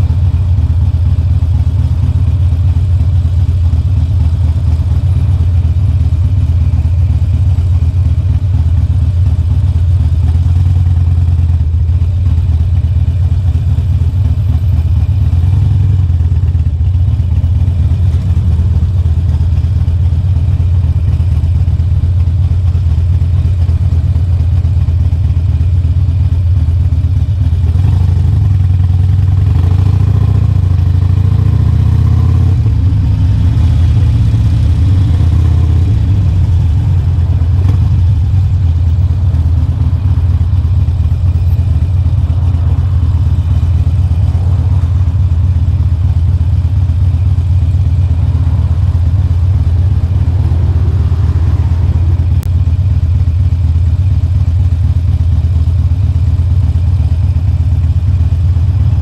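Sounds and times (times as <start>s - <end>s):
motorcycle exhaust note: 28.2s - 55.4s.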